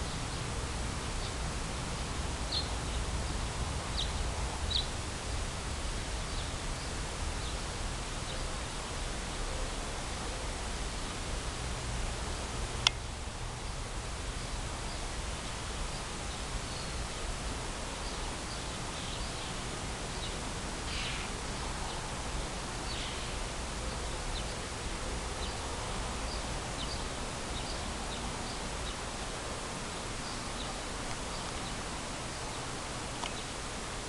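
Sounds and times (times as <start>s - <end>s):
outdoor background hiss: 0.0s - 34.0s
small birds chirping: 2.5s - 5.0s, 18.0s - 24.7s, 25.3s - 29.2s, 29.9s - 33.7s.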